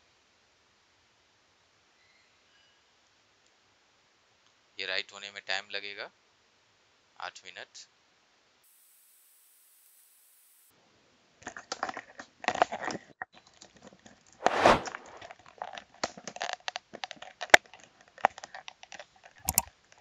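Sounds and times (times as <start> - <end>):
crinkling and crackling: 11.4 - 20.0
sharp clicks: 19.5 - 19.7.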